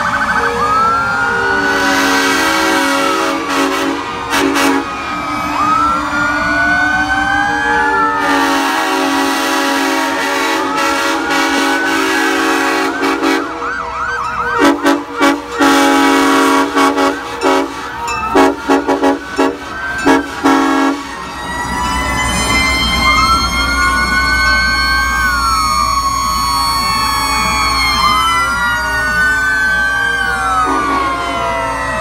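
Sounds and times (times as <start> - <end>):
fire truck sirens wailing: 0.0 - 32.0
air horn blasts: 1.3 - 5.0, 7.8 - 13.9, 14.5 - 21.2, 30.6 - 31.2.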